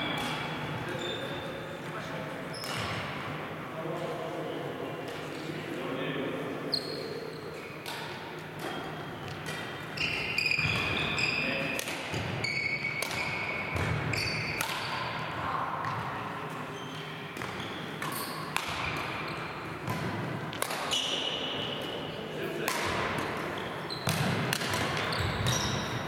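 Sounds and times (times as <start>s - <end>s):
shoes squeaking on wooden court: 0.0s - 1.6s, 2.5s - 3.0s, 6.7s - 15.1s, 15.9s - 20.0s, 20.9s - 22.2s, 23.2s - 26.0s
rackets hitting shuttlecock: 7.7s - 16.1s, 17.3s - 22.0s, 22.6s - 26.0s.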